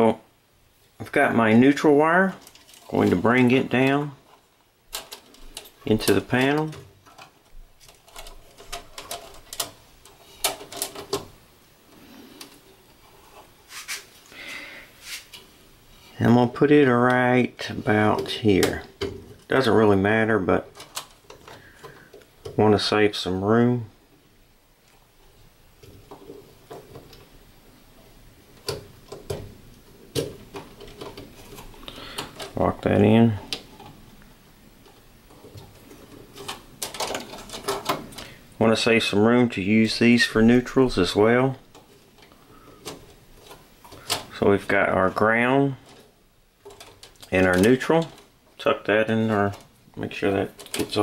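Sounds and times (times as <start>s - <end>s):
wire rustling: 0.8s - 23.6s, 24.8s - 51.0s
plastic clicks of wire in duct: 4.9s - 11.3s, 28.6s - 32.6s, 34.8s - 38.4s, 45.8s - 48.3s, 50.5s - 51.0s.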